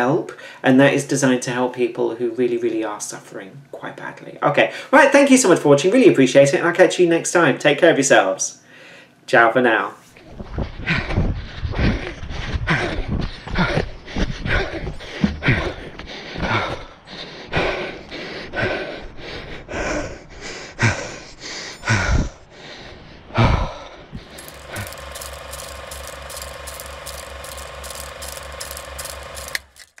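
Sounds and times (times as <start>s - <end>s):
mechanical clicking: 24.2s - 30.0s.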